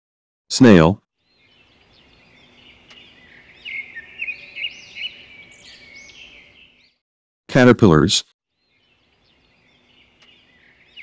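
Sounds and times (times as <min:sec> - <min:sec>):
birds chirping: 0:00.7 - 0:07.0, 0:08.5 - 0:11.0.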